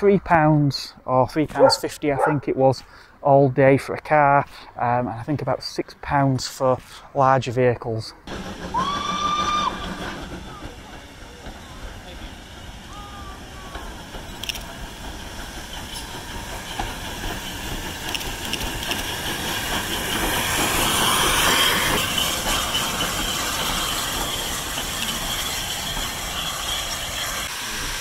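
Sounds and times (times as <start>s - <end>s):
steam locomotive running: 1.6s - 2.4s, 8.3s - 28.0s
hissing steam: 8.3s - 28.0s.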